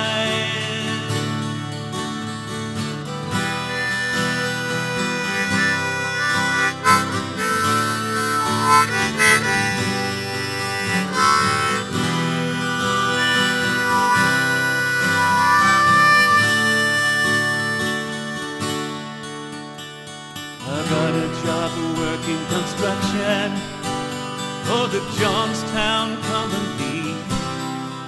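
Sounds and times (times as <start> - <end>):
harmonica solo: 0.0 - 24.8
strummed acoustic guitar: 0.0 - 28.0.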